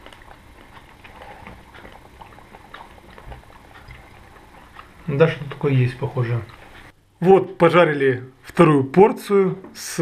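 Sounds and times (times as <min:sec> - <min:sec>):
acorn being chewed: 0:00.0 - 0:07.0.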